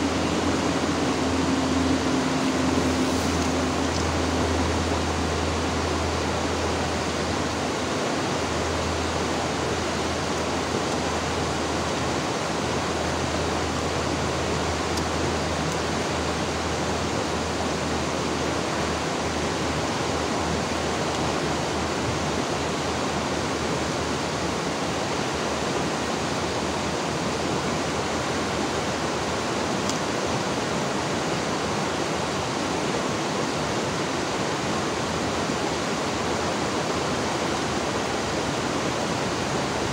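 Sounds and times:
river water babbling: 0.0 - 39.9.

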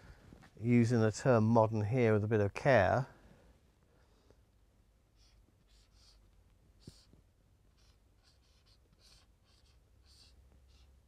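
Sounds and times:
marker scratching on whiteboard: 5.2 - 11.0.

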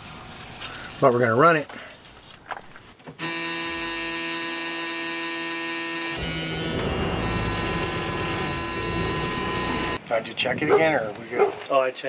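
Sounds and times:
electric buzz: 3.2 - 10.0.

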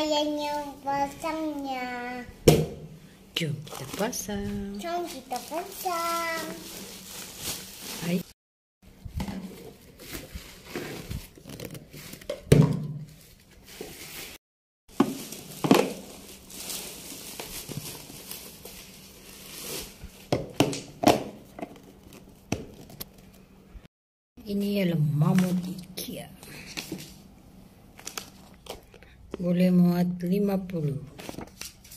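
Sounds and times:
plastic wrapping crinkling: 3.6 - 8.4, 9.6 - 12.4, 13.1 - 20.4, 27.9 - 29.1.

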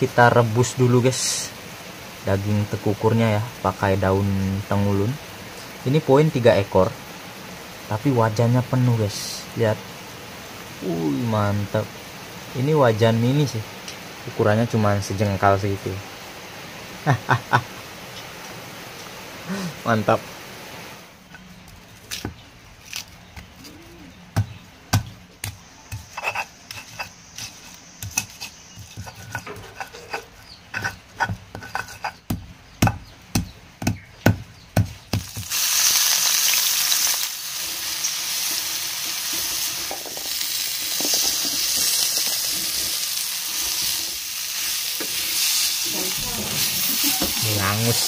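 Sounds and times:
meat sizzling in a wok: 0.0 - 19.6, 34.9 - 48.0
wooden spatula in steel wok: 36.7 - 48.0.

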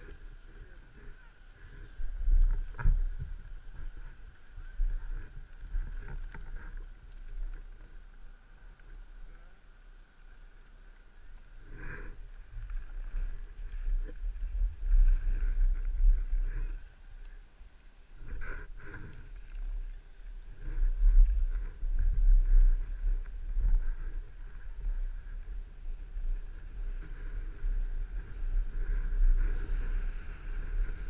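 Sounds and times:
skis scraping over packed snow: 0.0 - 31.0
wind buffeting microphone: 18.2 - 31.0.

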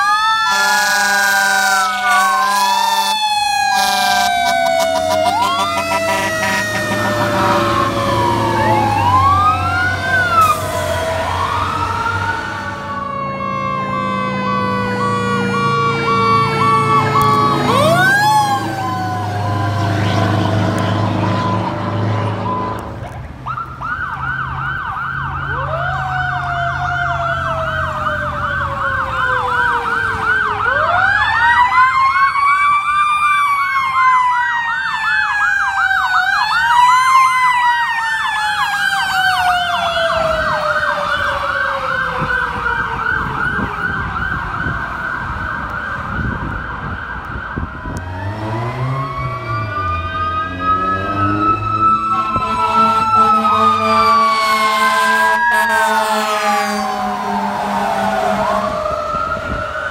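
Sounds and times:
electronic siren yelping: 0.0 - 22.9, 23.5 - 59.9
horn blasts: 0.5 - 9.4, 19.7 - 23.1, 52.0 - 58.8.

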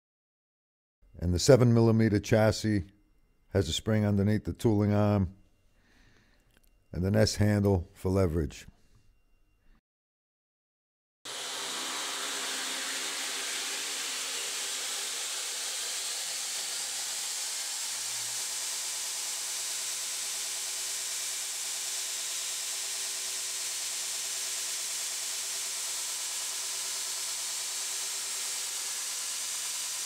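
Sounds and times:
belt grinder running: 11.3 - 30.0.

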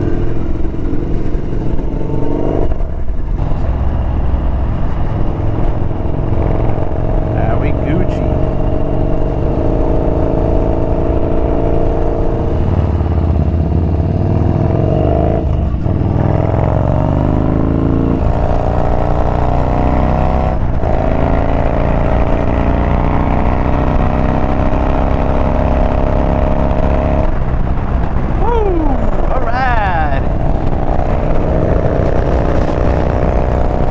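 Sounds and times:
motorcycle engine accelerating: 0.0 - 33.9.

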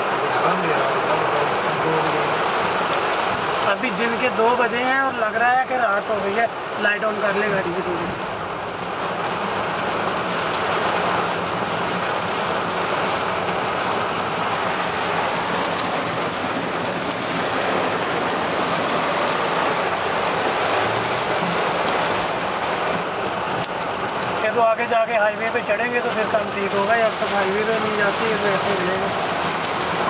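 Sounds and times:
heavy rain on car roof: 0.0 - 30.0.

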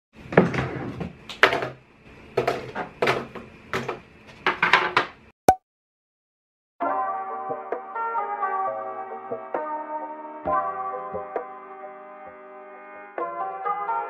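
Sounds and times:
art supplies clattering on desk: 2.4 - 5.2.

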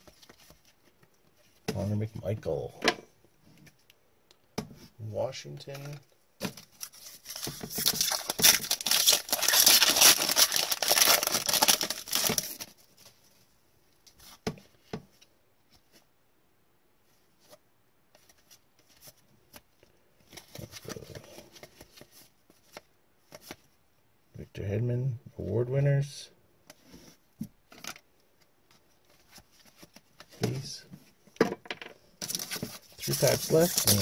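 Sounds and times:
cards rustling: 0.0 - 1.6, 5.7 - 13.2, 32.2 - 34.0
wrapper tearing and crinkling: 6.8 - 12.7, 32.2 - 34.0.

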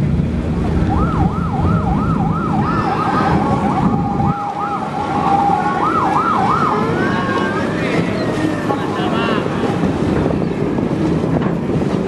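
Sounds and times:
boat engine running low: 0.0 - 12.0
electronic siren wailing: 0.8 - 8.3.

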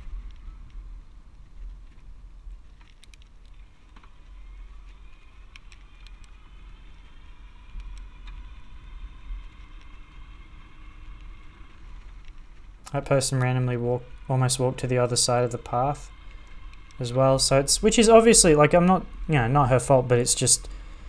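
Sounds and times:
wind rumble on microphone: 0.0 - 19.3
faint motor whine: 0.0 - 21.0
light clicks: 1.6 - 6.7.

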